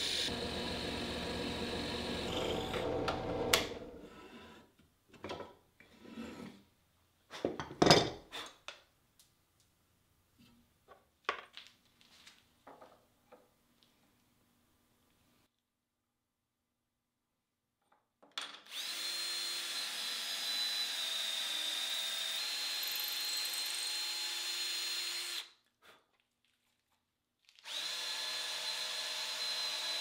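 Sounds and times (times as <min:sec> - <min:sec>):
drill press running: 0:00.0 - 0:04.0.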